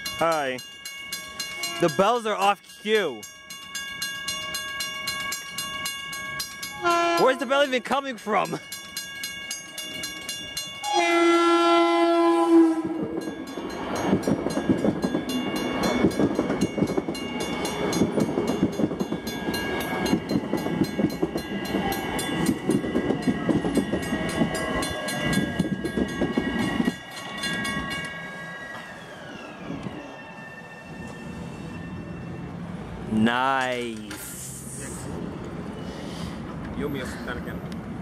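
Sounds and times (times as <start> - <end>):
crossing warning bell dinging: 0.0 - 34.2
train horn blast: 6.7 - 7.6, 10.8 - 13.1
falling whine: 26.6 - 33.2.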